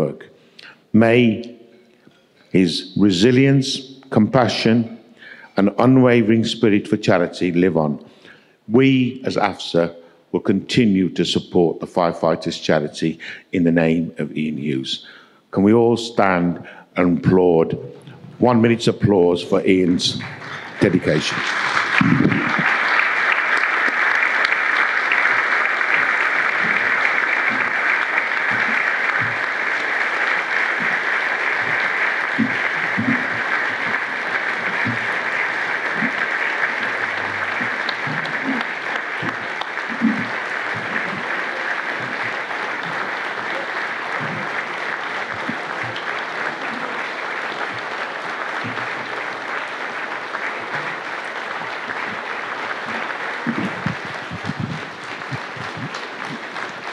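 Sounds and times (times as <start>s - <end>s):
audience applauding: 20.1s - 56.9s.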